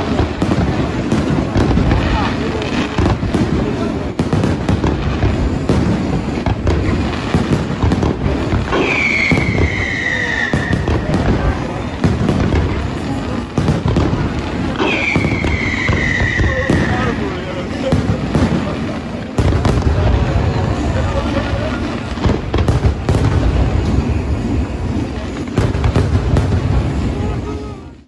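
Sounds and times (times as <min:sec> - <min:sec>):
fireworks crackling and booming: 0:00.0 - 0:28.0
firework whistles falling in pitch: 0:08.7 - 0:11.4, 0:14.7 - 0:17.4.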